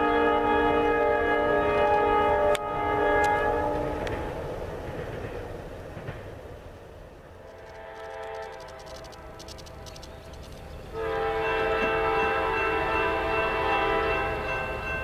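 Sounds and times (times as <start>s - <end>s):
train air horn chord: 0.0s - 4.1s, 11.0s - 14.5s
freight train rumbling past: 0.0s - 15.0s
metallic clicking: 7.4s - 10.9s.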